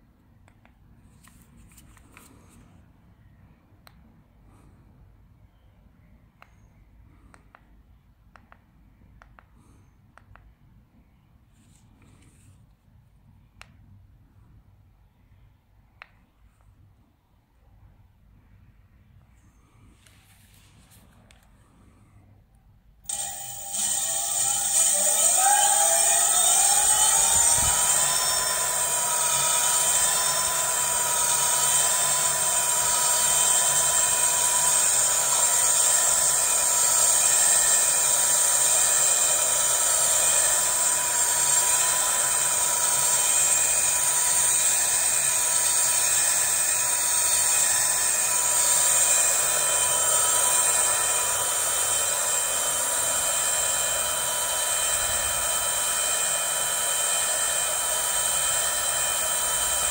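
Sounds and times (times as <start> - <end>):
electric motor whine: 23.1 - 59.9.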